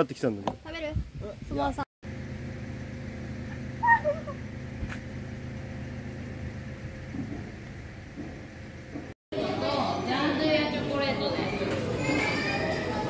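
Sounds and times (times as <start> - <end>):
motor idling hum: 2.0 - 9.2.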